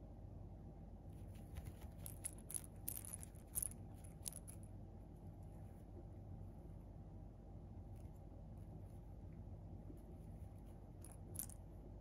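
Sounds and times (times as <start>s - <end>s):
cat toy clicks and jingles: 1.9s - 4.6s.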